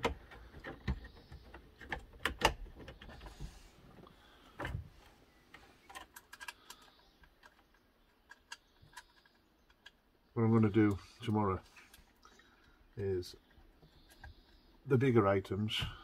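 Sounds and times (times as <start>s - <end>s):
cables clicking into plastic dashboard: 0.0s - 3.5s.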